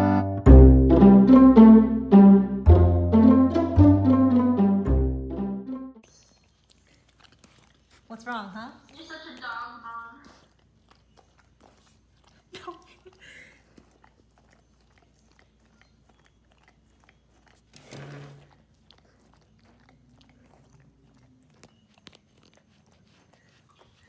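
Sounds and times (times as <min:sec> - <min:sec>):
dog licking and chewing food: 0:06.0 - 0:24.0.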